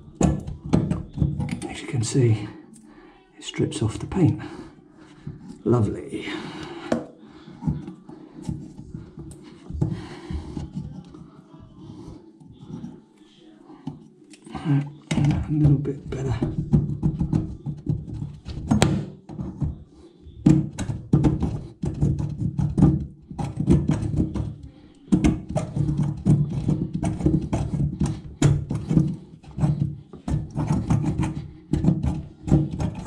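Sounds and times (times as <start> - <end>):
paint scraping off metal pipe: 13.8 - 33.0.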